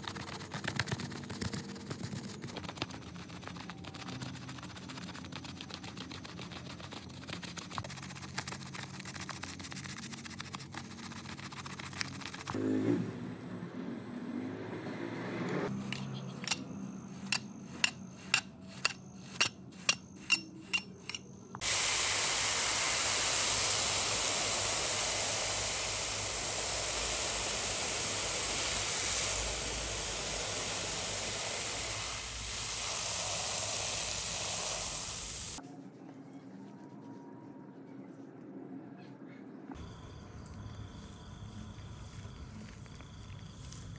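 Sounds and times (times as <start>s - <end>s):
water spraying onto rug: 0.0s - 12.6s, 21.6s - 35.6s.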